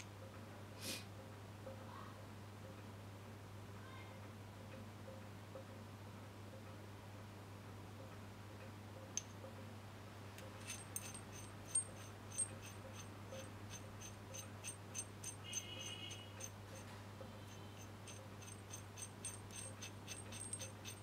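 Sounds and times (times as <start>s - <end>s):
low steady hum: 5.8s - 21.0s
metallic clicking of steel adapters: 10.4s - 16.8s, 17.8s - 21.0s
short squeak: 12.3s - 21.0s.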